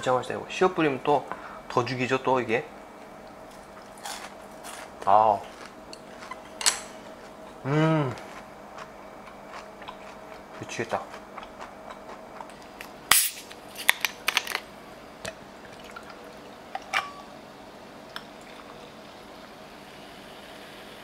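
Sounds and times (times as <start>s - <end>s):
bottle cap hiss of gas: 13.1s - 13.4s.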